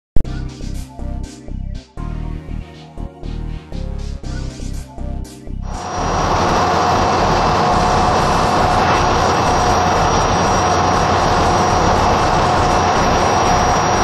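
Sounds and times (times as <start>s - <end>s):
engine room machinery whining: 5.6s - 14.0s.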